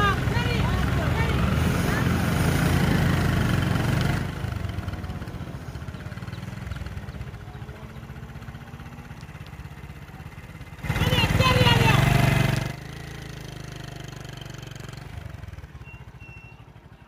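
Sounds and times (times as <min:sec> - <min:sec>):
vehicle engine idling: 0:02.8 - 0:12.8, 0:14.2 - 0:17.0.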